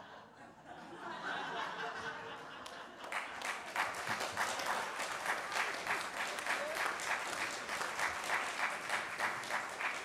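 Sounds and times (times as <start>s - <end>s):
congregation applauding: 3.0s - 10.0s.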